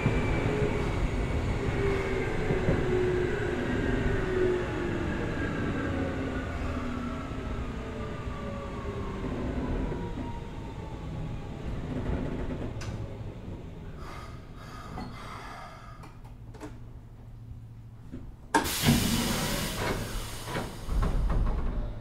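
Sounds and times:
train rattles and knocks: 0:00.0 - 0:04.2, 0:09.1 - 0:13.8, 0:18.1 - 0:22.0
electric train slowing with whine: 0:00.0 - 0:16.1, 0:18.6 - 0:22.0
air hiss of doors opening: 0:18.6 - 0:21.6.

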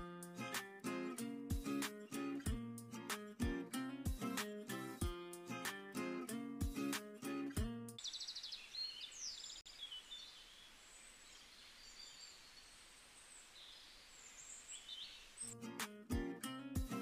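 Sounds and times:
faint bird chirps and trills: 0:08.0 - 0:15.6
quiet hiss: 0:08.0 - 0:15.6.

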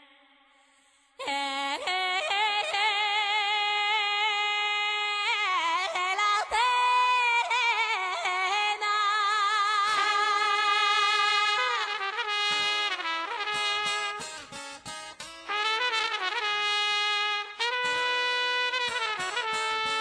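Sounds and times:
woman singing unaccompanied: 0:01.2 - 0:12.3.

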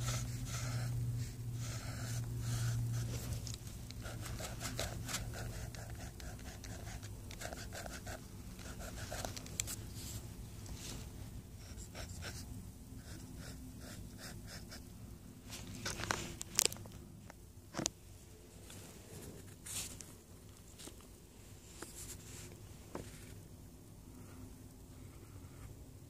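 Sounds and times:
soft scratching and rustling: 0:00.0 - 0:12.3, 0:15.4 - 0:17.0, 0:18.5 - 0:23.4
low steady hum: 0:00.0 - 0:26.0.

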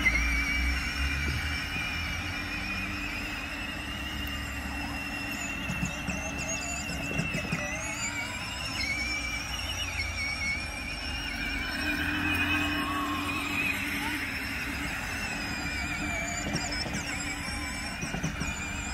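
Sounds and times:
electric motor whining: 0:00.0 - 0:18.9.

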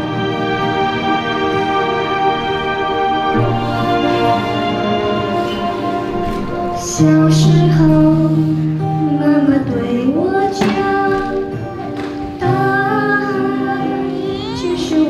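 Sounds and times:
instrumental accompaniment: 0:00.0 - 0:15.0
child singing: 0:09.1 - 0:15.0.

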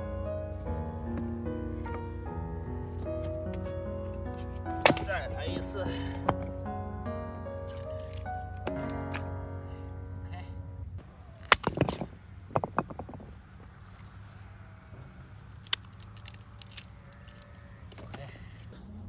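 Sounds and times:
wood cracking and splintering: 0:04.8 - 0:05.7, 0:07.6 - 0:09.3, 0:11.4 - 0:13.3, 0:15.4 - 0:18.2.

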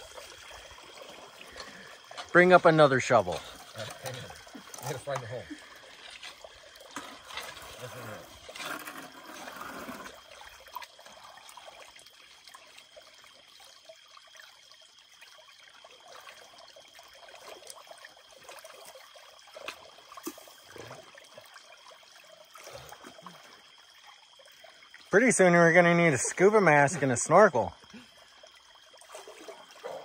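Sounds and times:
creek water splashing: 0:00.0 - 0:30.0
shovel digging creek bed: 0:03.3 - 0:10.2.

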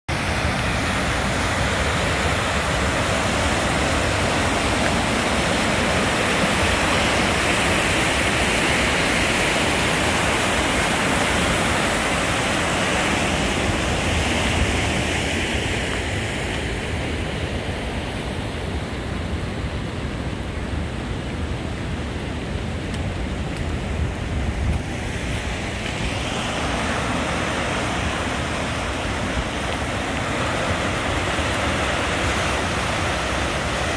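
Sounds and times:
floodwater rushing through channel: 0:00.1 - 0:33.9.

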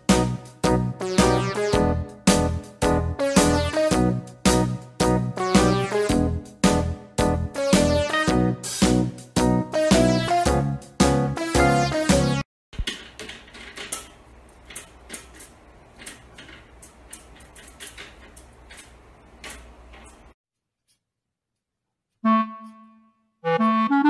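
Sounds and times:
background music: 0:00.0 - 0:12.4, 0:22.2 - 0:24.0
window blind slats rattling: 0:12.8 - 0:20.4
piano and clarinet music: 0:22.2 - 0:24.0.

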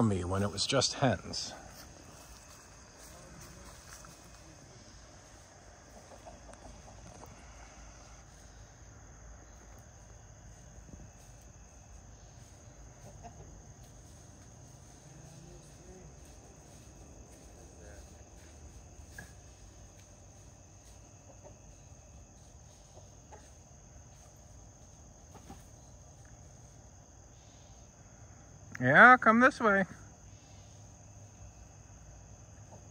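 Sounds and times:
high insect chirr: 0:00.0 - 0:32.9
chickens clucking: 0:01.3 - 0:08.6, 0:11.6 - 0:17.6, 0:18.8 - 0:26.2, 0:32.6 - 0:32.9.

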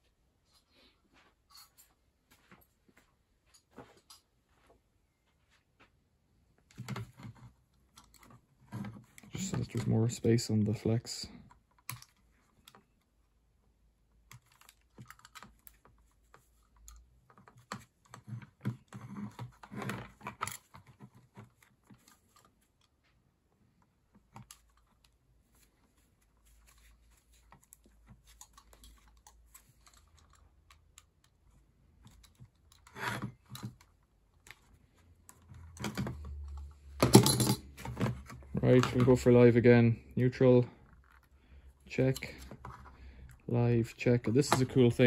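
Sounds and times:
clicks and scrapes stripping cable: 0:06.7 - 0:10.0, 0:11.4 - 0:13.1, 0:14.2 - 0:23.1, 0:24.1 - 0:39.3.

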